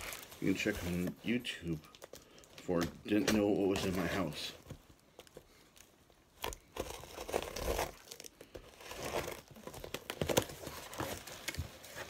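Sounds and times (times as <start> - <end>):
wrapping tearing and rustling: 0.0 - 12.0.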